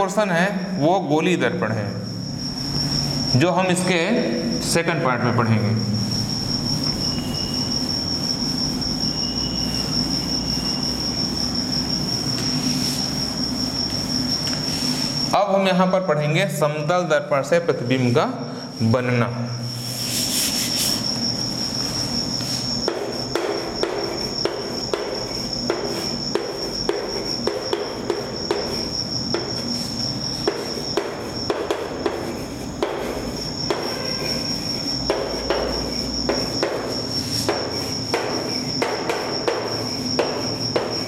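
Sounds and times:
high-pitched pulsing trill: 1.9 - 17.0
chalk tapping and scraping on board: 19.8 - 21.2, 22.4 - 41.0.

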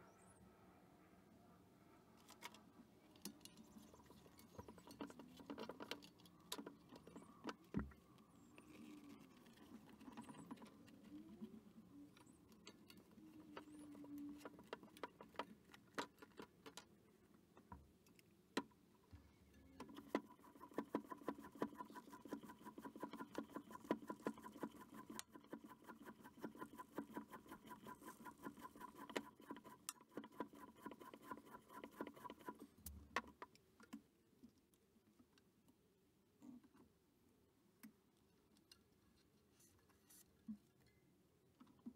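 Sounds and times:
floor pump rapid clicks and whine: 19.8 - 33.3.

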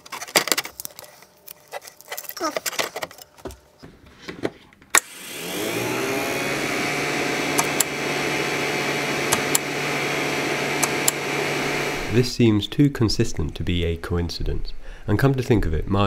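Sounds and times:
cooling fans whirring: 0.0 - 15.7
power switch click: 9.3 - 9.7, 10.8 - 11.2.

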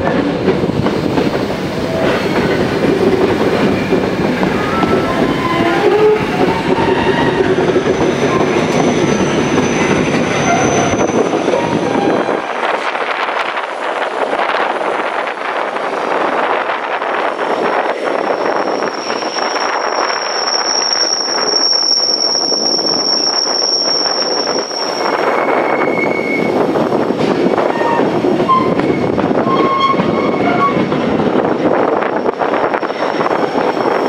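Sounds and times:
train wheels running on rails: 0.0 - 34.0
high wheel squeal: 4.6 - 12.3, 18.2 - 26.6.

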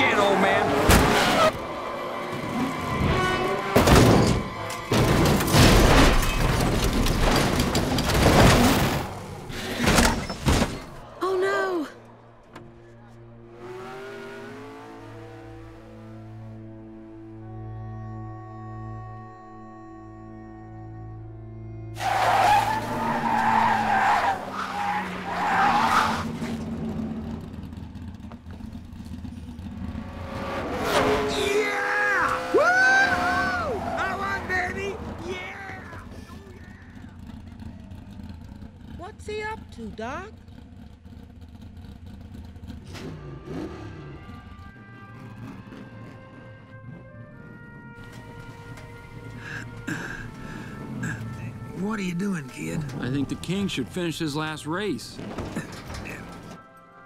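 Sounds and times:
race car tumbling impacts: 3.7 - 11.0, 55.2 - 56.6
dramatic film music: 15.6 - 22.1, 44.6 - 57.0
tyres screeching: 22.0 - 26.6, 30.8 - 37.4.

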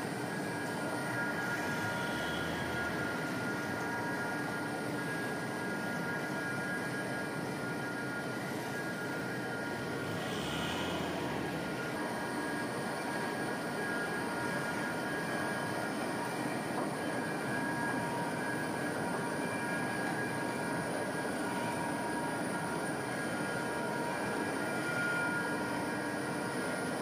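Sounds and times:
faint high hum: 0.0 - 27.0.

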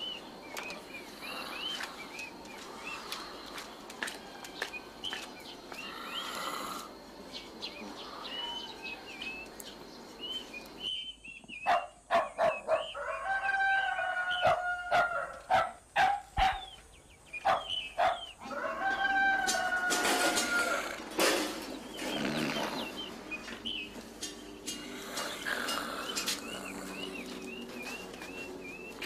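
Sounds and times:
birds chirping: 0.0 - 29.0
rooster crowing: 8.0 - 9.4, 12.9 - 15.5, 18.4 - 21.1.

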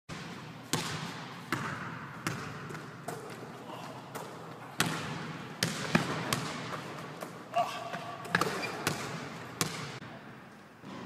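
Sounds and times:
basketball bouncing on hardwood floor: 0.7 - 3.4, 4.8 - 7.0.

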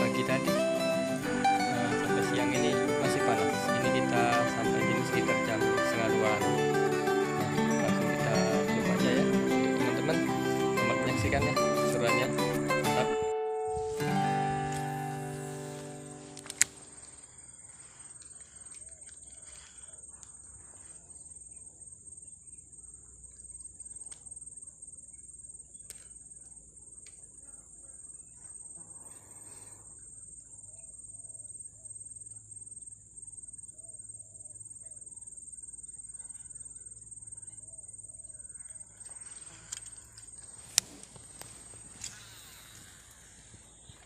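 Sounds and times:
high-pitched insect drone: 0.0 - 44.0
faint clicks: 18.0 - 20.4, 38.6 - 44.0.

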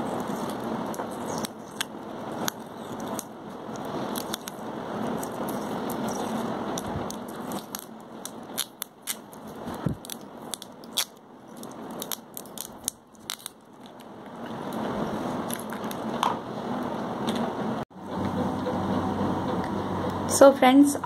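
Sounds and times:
adhesive tape crackling off roll: 0.1 - 16.1
tape rustling: 0.1 - 16.3.

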